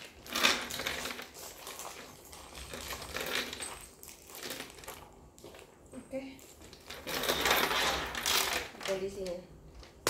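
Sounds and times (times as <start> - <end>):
bag contents rustling: 0.0 - 9.3
metal chain strap clinking: 0.2 - 5.0, 6.8 - 8.6.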